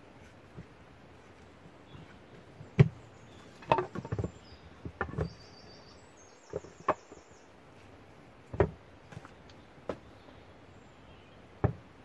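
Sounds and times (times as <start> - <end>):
wooden boards knocking together: 2.7 - 5.4, 8.5 - 10.1, 11.6 - 12.0.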